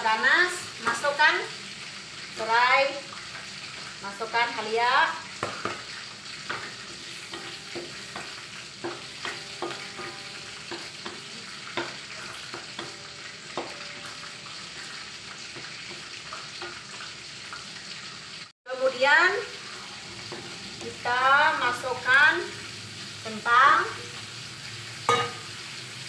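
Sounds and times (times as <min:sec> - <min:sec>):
paste sizzling in hot oil: 0:00.0 - 0:26.0
spatula scraping a wok: 0:05.3 - 0:18.4, 0:19.5 - 0:23.3.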